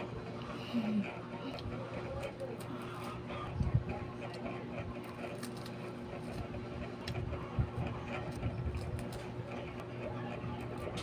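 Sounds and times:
steady low hum: 0:00.0 - 0:11.0
chewing and crunching biscuit: 0:00.4 - 0:07.2.

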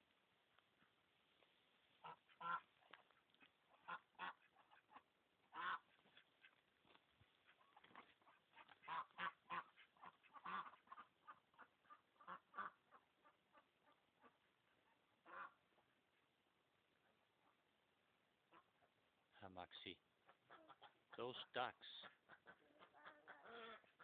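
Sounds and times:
ducks quacking: 0:02.0 - 0:06.6, 0:07.4 - 0:16.2, 0:18.5 - 0:19.0, 0:20.2 - 0:24.0.

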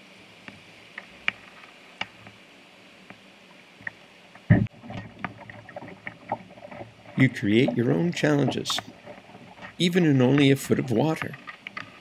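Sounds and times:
river water running over stones: 0:00.1 - 0:12.0
heavy thump: 0:04.5 - 0:05.1
pole clicking on rocks: 0:04.9 - 0:12.0.

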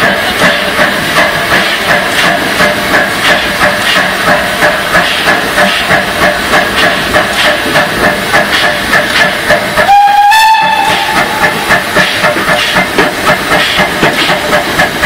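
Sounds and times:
steam locomotive chuffing: 0:00.0 - 0:15.0
steam whistle blast: 0:09.8 - 0:11.4.

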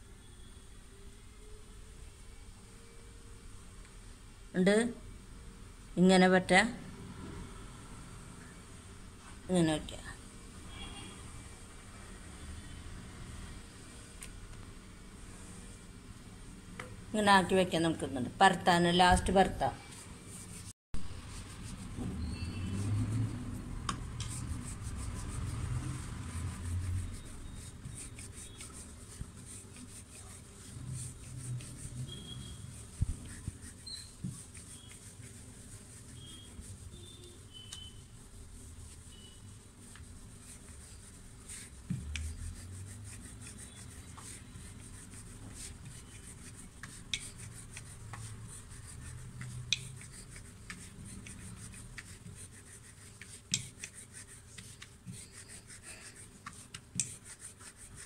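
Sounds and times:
rolling pin rolling dough: 0:17.8 - 0:58.0.

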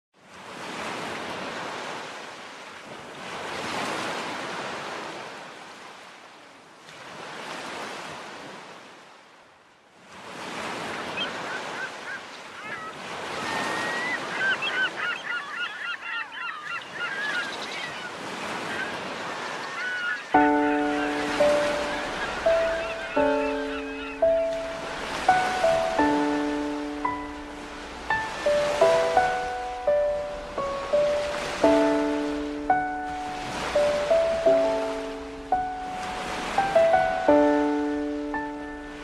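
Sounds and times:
surf washing in: 0:00.2 - 0:06.3, 0:10.0 - 0:39.0
birds calling: 0:10.8 - 0:39.0.

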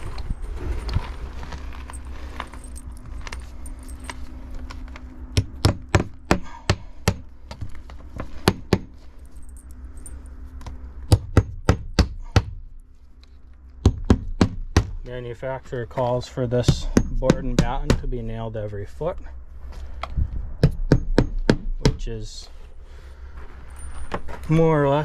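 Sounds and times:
hammer striking nails: 0:05.3 - 0:07.7, 0:08.4 - 0:08.9, 0:11.1 - 0:12.6, 0:13.8 - 0:15.0, 0:16.7 - 0:18.1, 0:20.6 - 0:22.1.

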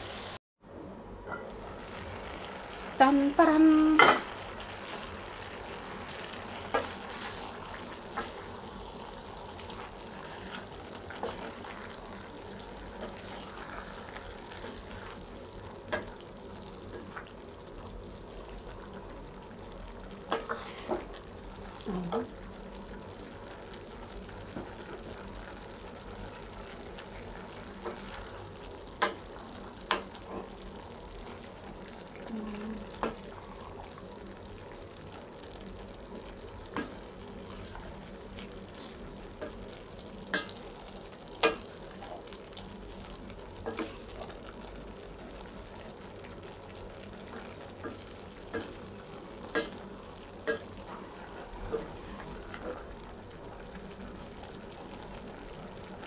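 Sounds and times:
food sizzling in a pot: 0:00.0 - 0:56.0
wooden spatula scraping a pot: 0:20.3 - 0:21.2.

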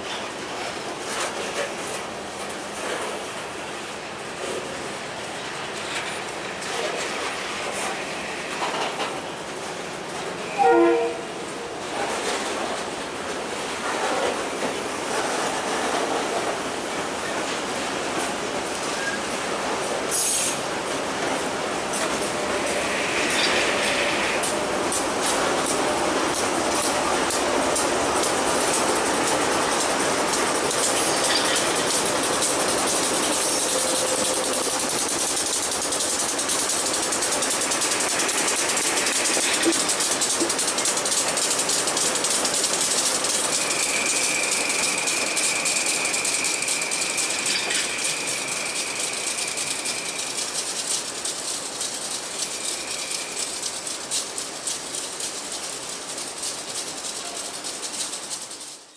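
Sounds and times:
train wheels rattling over rails: 0:00.0 - 0:58.9
diesel locomotives running: 0:17.6 - 0:58.1
high squeal: 0:43.4 - 0:50.4.

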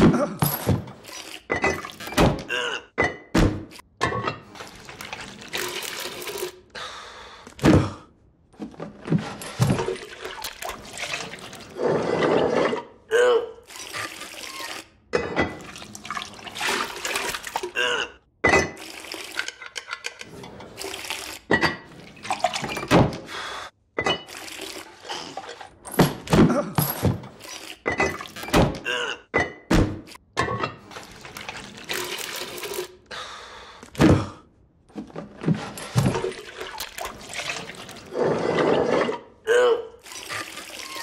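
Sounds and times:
liquid pouring: 0:04.5 - 0:06.6, 0:15.6 - 0:17.7, 0:20.7 - 0:22.8, 0:24.2 - 0:25.7, 0:30.9 - 0:32.9, 0:36.1 - 0:38.1, 0:40.0 - 0:41.0.

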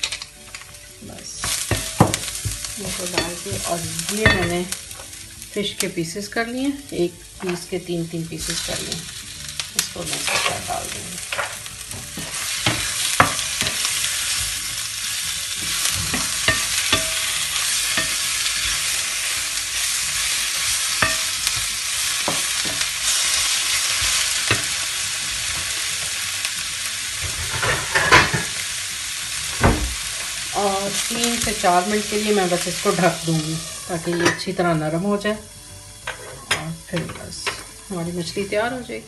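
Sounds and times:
fish sizzling in a frying pan: 0:00.0 - 0:39.0
wooden spatula scraping a pan: 0:09.9 - 0:14.7, 0:36.0 - 0:36.7.

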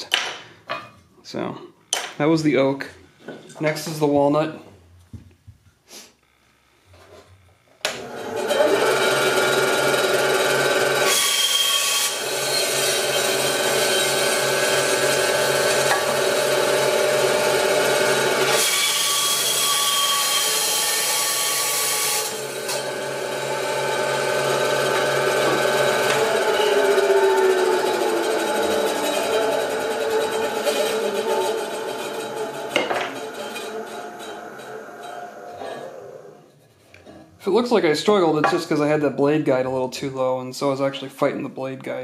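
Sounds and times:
bandsaw motor hum: 0:07.4 - 0:36.5
bandsaw blade cutting wood: 0:07.9 - 0:36.6.

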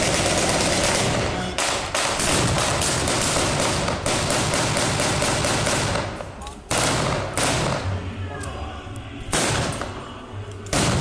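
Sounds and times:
automatic gunfire: 0:00.0 - 0:07.9, 0:10.7 - 0:11.0.

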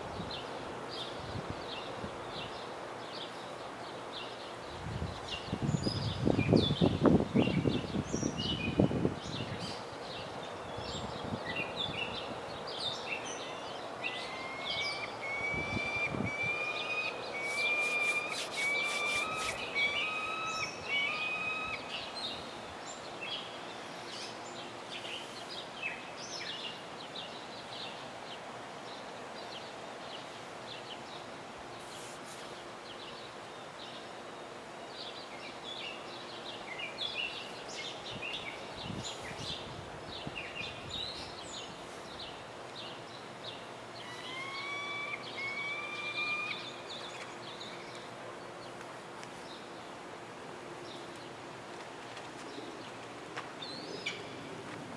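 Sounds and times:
outdoor background hiss: 0:00.0 - 0:54.9
birds chirping and calling: 0:10.9 - 0:23.4, 0:43.5 - 0:48.2, 0:53.6 - 0:54.5
bird whistling short notes: 0:14.5 - 0:21.8.

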